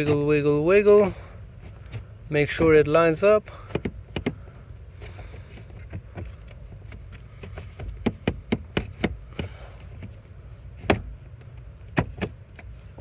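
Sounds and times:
hard plastic knocks and clicks: 3.6 - 4.5, 5.5 - 10.2, 10.8 - 11.1, 11.9 - 12.7.

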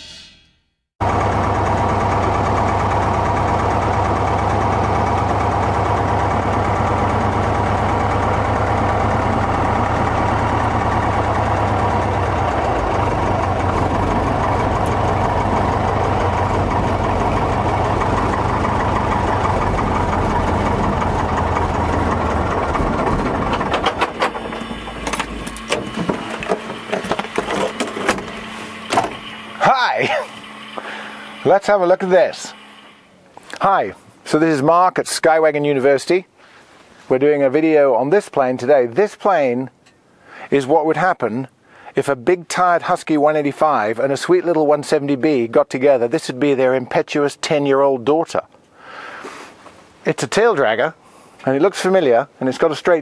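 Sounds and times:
aircraft engine droning: 1.0 - 33.6
irregular clicks and knocks: 20.6 - 29.3.

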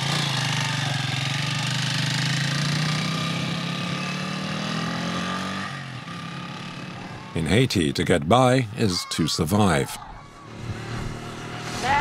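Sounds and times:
small motorcycle engine running: 0.0 - 7.6.

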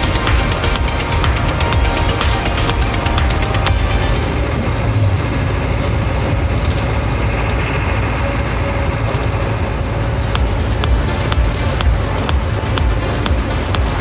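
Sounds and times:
electronic music ticking beat: 0.0 - 4.5, 10.3 - 14.0
bus engine rumble: 0.0 - 14.0
road noise: 0.0 - 14.0.

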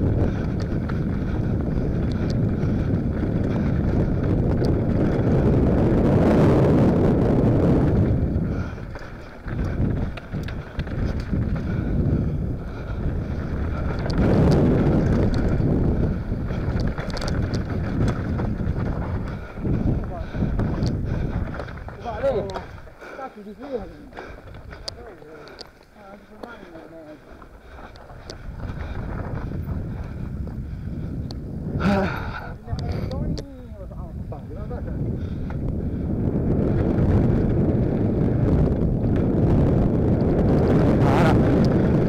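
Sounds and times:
tyres rolling on dirt: 0.0 - 31.0
bike rattles and clicks: 0.0 - 42.0
wind rushing over microphone: 0.0 - 42.0.

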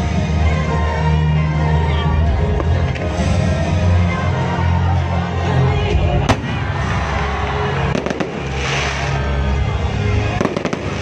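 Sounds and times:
music with steady bass: 0.0 - 11.0
fireworks bangs: 6.2 - 9.4, 10.3 - 11.0
fireworks hiss: 7.9 - 9.4.

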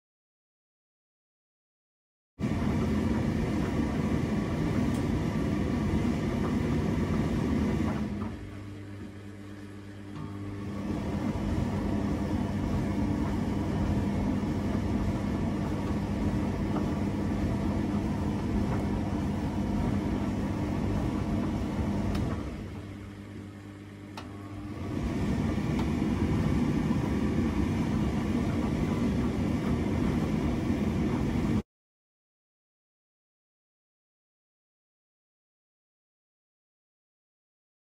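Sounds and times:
machine motor hum: 2.4 - 31.6.

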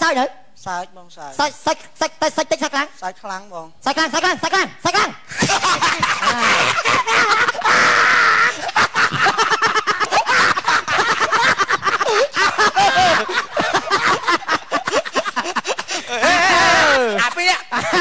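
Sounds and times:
men screaming and shouting: 6.0 - 9.1, 15.9 - 17.4.

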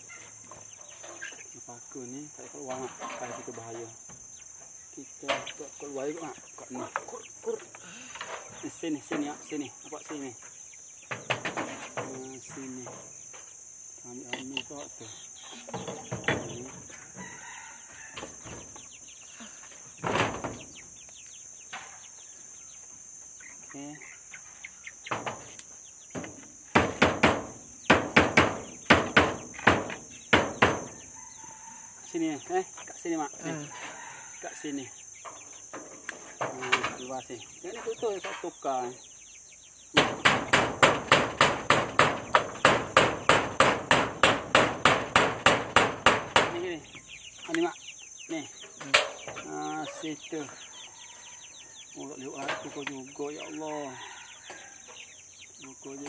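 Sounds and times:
birds chirping: 0.0 - 56.0
hammer knocks: 26.1 - 31.0, 40.0 - 46.7.

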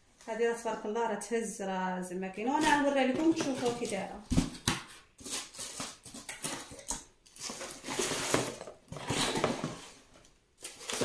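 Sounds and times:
plastic wrap crinkling: 2.6 - 9.8, 10.6 - 11.0.

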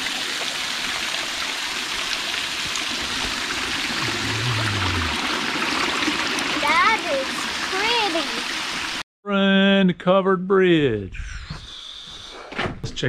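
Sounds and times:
waterfall splashing into pool: 0.0 - 9.0
short low hum falling in pitch: 3.9 - 5.3.

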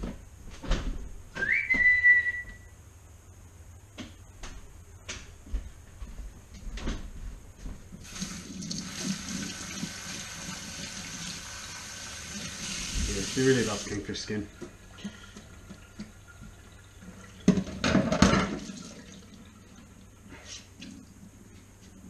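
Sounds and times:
person whistling: 1.4 - 2.7
tap running into a sink: 17.3 - 19.3.

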